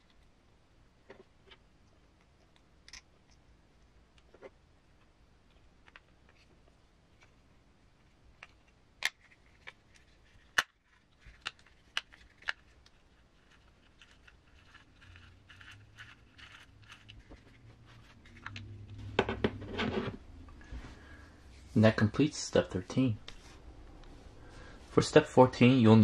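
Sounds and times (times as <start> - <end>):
small parts clicking and tapping: 8.4 - 19.0
rustling: 8.4 - 21.8.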